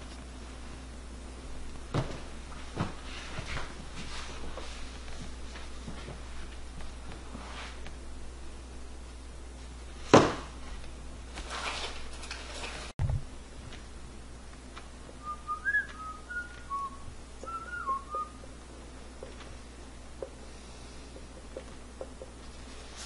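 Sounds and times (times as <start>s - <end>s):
sliding whistled notes: 15.2s - 18.4s.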